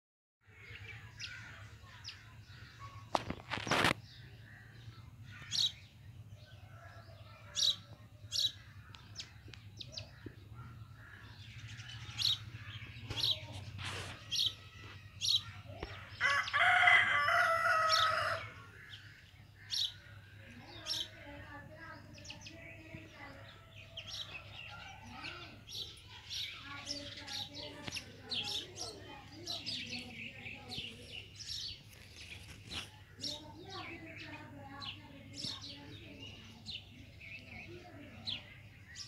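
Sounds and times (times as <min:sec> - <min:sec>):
small birds chirping: 0:00.4 - 0:39.0
rooster crowing: 0:16.2 - 0:18.6.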